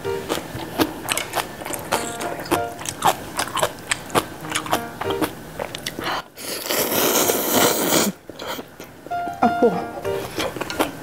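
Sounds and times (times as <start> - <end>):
chewing: 0.3 - 8.9, 10.2 - 11.0
loud noodle slurp: 6.4 - 8.2.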